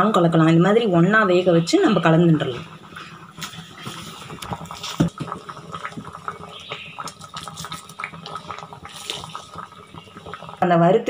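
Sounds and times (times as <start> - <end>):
thick gravy bubbling: 0.0 - 11.0.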